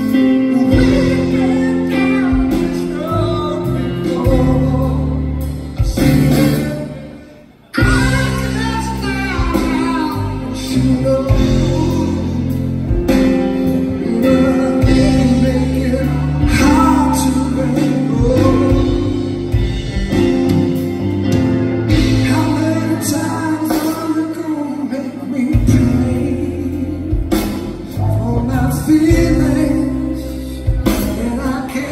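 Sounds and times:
man singing: 0.0 - 31.9
electric bass: 7.8 - 24.5, 25.4 - 31.9.

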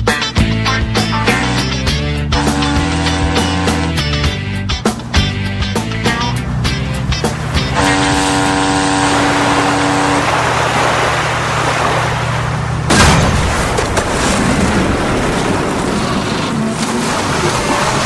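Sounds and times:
low engine drone: 0.0 - 18.0
ship horn blast: 1.1 - 4.7, 5.3 - 13.0
rumbling crunching noise: 12.6 - 18.0
loud crash of ship colliding: 12.9 - 18.0.

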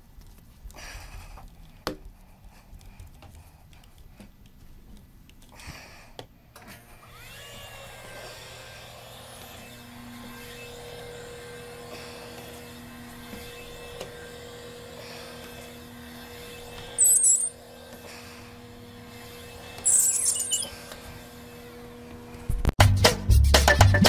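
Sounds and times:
small electric motor humming: 7.0 - 22.4
short high squeaks: 17.0 - 17.6, 19.8 - 20.8.

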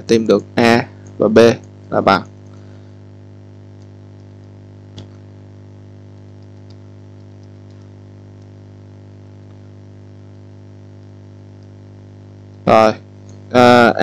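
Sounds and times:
electrical mains hum: 0.0 - 14.0
faint clicks: 3.7 - 5.3, 6.2 - 8.6, 10.3 - 11.8, 13.2 - 13.5.

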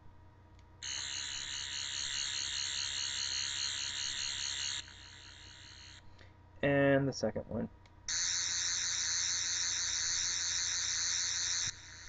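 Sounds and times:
warbling electronic whir: 0.8 - 6.0, 8.1 - 12.0.

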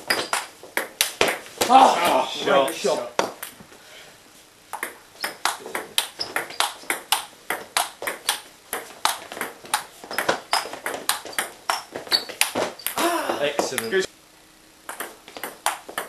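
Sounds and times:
table tennis ball clicking: 0.1 - 1.4, 4.7 - 13.0, 14.9 - 16.0.

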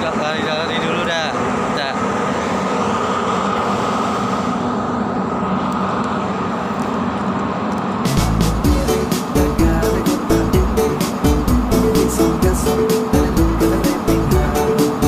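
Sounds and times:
steady hum: 0.0 - 15.0
steady rushing noise: 0.0 - 15.0
music with strong regular beat: 8.1 - 15.0.

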